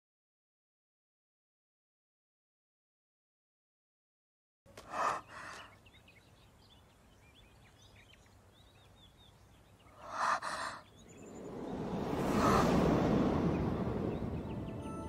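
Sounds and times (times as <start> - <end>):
faint birds chirping: 4.7 - 15.0
woman's sharp breaths: 4.8 - 5.8, 10.0 - 10.9
music: 14.6 - 15.0.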